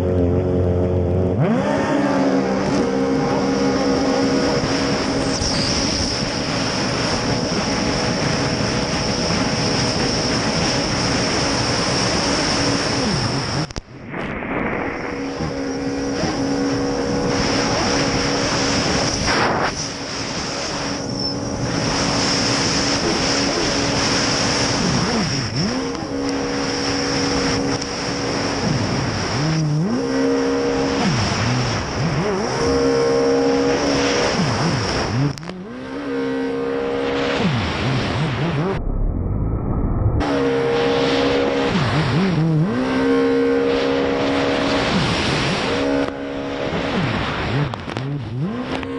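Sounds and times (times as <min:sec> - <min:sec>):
jet ski engine at high revs: 0:00.0 - 0:39.4, 0:40.2 - 0:48.9
wind: 0:00.0 - 0:48.9
water spray rushing: 0:01.8 - 0:35.4.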